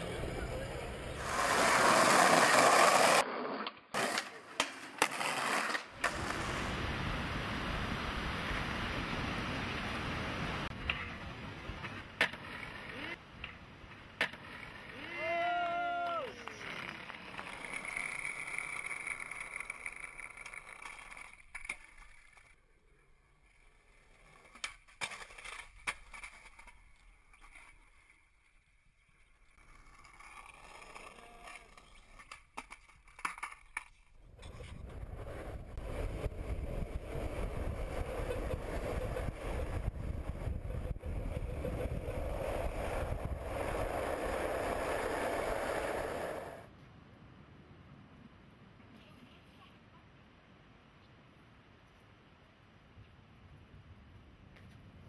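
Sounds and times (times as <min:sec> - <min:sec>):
skateboard clacks: 0:00.0 - 0:06.6, 0:11.8 - 0:22.6, 0:24.1 - 0:28.1, 0:29.6 - 0:46.6
skateboard wheels rolling on bricks: 0:00.0 - 0:07.6, 0:08.2 - 0:46.7
wind rumbling on microphone: 0:34.2 - 0:46.6.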